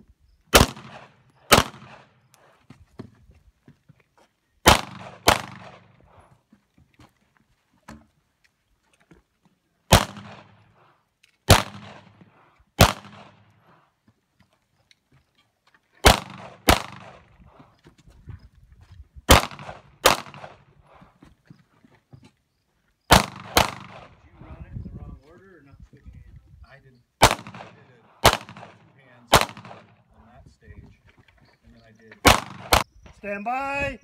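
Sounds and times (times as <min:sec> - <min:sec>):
pistol shots with echo: 0:00.5 - 0:02.3, 0:04.6 - 0:06.0, 0:09.9 - 0:10.6, 0:11.5 - 0:12.2, 0:12.8 - 0:13.5, 0:16.0 - 0:17.4, 0:19.3 - 0:20.7, 0:23.1 - 0:24.2, 0:27.2 - 0:30.0, 0:32.2 - 0:32.9.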